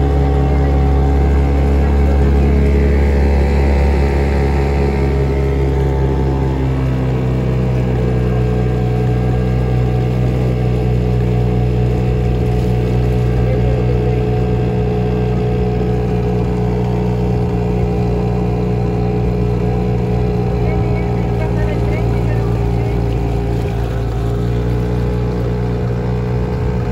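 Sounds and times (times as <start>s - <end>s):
motorboat engine running: 0.0s - 26.9s.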